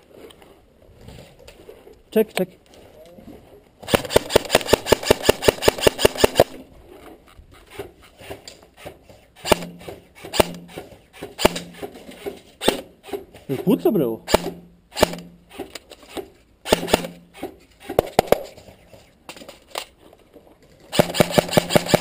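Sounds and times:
airsoft rifle shots: 0:03.8 - 0:06.6, 0:09.4 - 0:12.0, 0:14.3 - 0:15.6, 0:16.6 - 0:18.7, 0:20.9 - 0:22.0.

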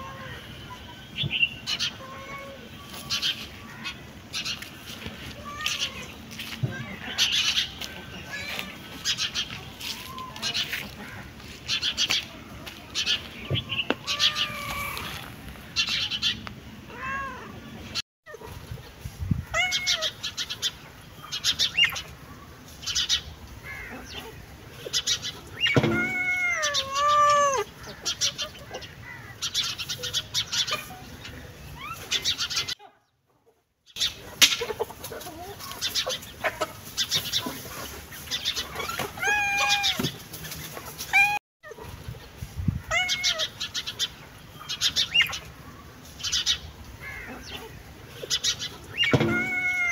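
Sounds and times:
birds chirping: 0:00.0 - 0:18.0, 0:19.6 - 0:33.2, 0:42.2 - 0:49.9
cat meowing: 0:05.4 - 0:06.1, 0:14.0 - 0:15.2, 0:19.5 - 0:20.1, 0:25.8 - 0:27.7, 0:39.2 - 0:40.1, 0:42.9 - 0:43.5, 0:49.0 - 0:49.9.

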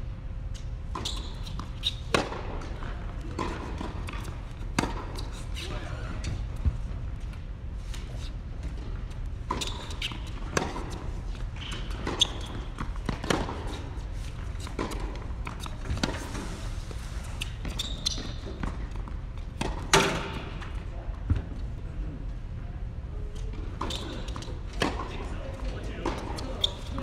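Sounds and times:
racket striking ball: 0:02.1 - 0:02.7, 0:11.7 - 0:13.9, 0:19.6 - 0:20.5.

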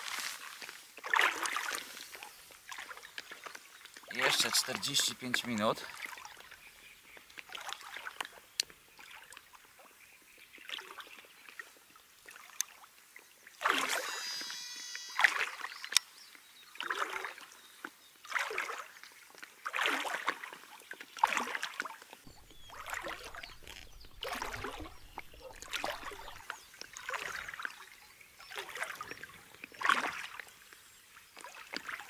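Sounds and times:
water sloshing and splashing: 0:18.3 - 0:27.7.

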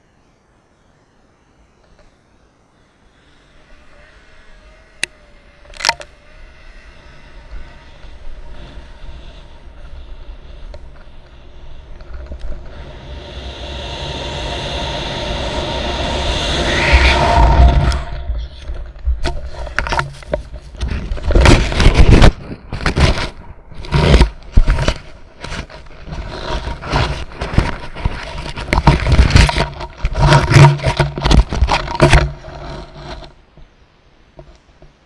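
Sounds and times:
fabric rustling against microphone: 0:18.3 - 0:33.6.

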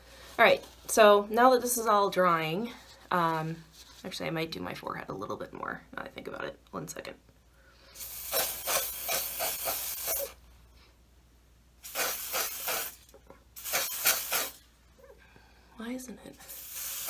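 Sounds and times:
aerosol sprayer hissing: 0:08.0 - 0:10.4, 0:11.8 - 0:14.6, 0:16.4 - 0:17.0.

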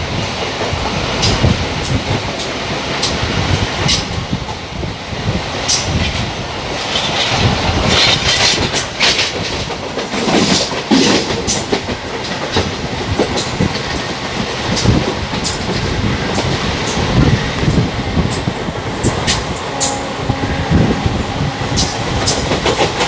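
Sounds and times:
train wheels rumbling: 0:00.0 - 0:23.0
wheels clattering over rail joints: 0:05.5 - 0:20.4, 0:21.7 - 0:23.0.

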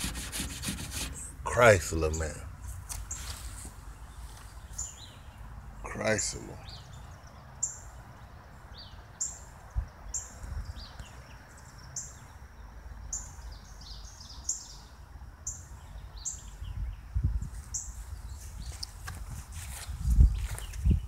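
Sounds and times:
softer lower bird chirps: 0:03.0 - 0:05.5, 0:06.6 - 0:19.0.

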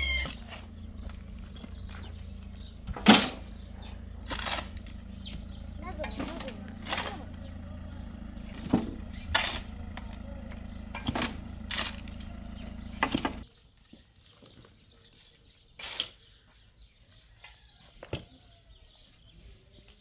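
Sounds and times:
low mechanical hum: 0:00.0 - 0:13.4
shovels striking stony soil: 0:04.3 - 0:04.9, 0:09.3 - 0:09.6.

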